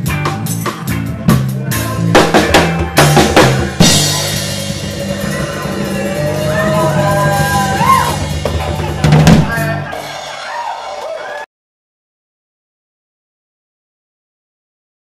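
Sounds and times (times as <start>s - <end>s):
bass line: 0.0s - 10.7s
drum hits: 0.0s - 10.8s
reggae band playing: 0.0s - 11.4s.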